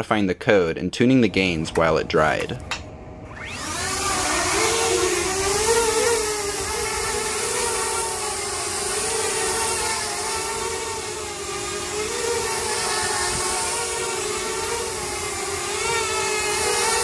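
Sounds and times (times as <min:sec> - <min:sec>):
drone propellers whining: 0:01.1 - 0:17.0.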